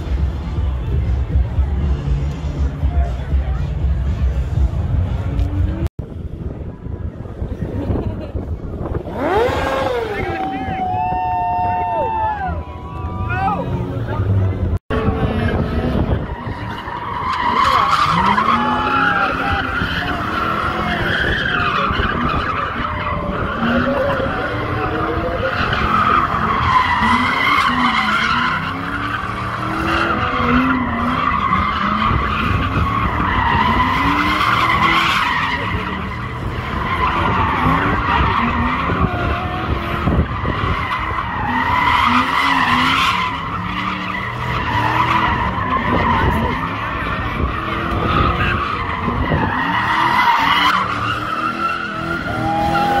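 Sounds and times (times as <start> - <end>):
engine revving: 8.9 - 10.8, 13.6 - 53.0.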